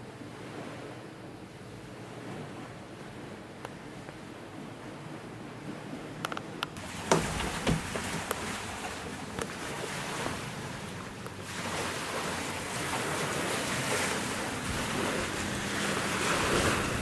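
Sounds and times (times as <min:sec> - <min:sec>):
wind rushing over microphone: 0:06.8 - 0:17.0.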